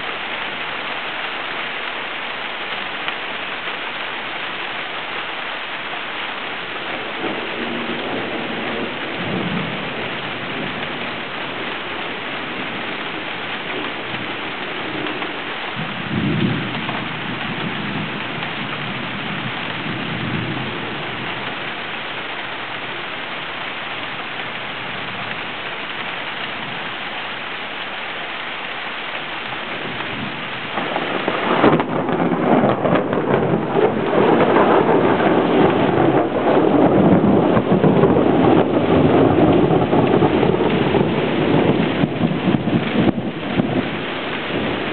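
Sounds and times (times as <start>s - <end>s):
heavy rain hissing: 0.0s - 44.9s
thunder rumbling: 6.7s - 23.0s, 29.4s - 44.9s
wind gusts buffeting microphone: 6.9s - 21.6s, 29.5s - 44.9s.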